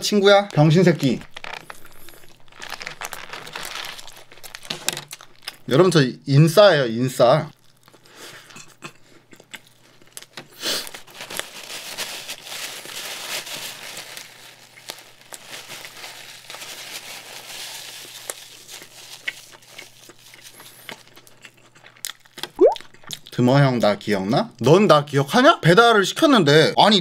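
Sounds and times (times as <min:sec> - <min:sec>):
paper napkin crinkling: 0:00.4 - 0:05.4, 0:10.8 - 0:20.3.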